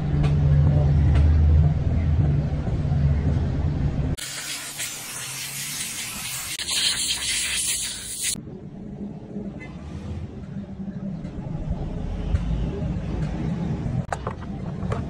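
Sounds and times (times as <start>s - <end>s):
compressed air blow gun hissing: 4.2s - 8.4s.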